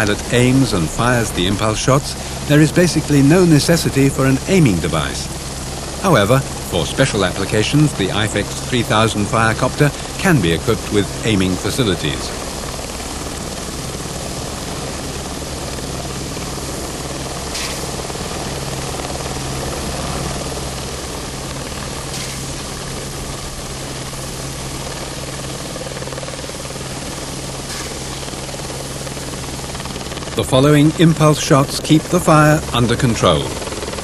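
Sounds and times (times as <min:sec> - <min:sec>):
helicopter rotor and engine: 0:00.0 - 0:34.0
sharp water cannon shots: 0:17.5 - 0:18.1, 0:22.0 - 0:22.8, 0:27.6 - 0:28.2.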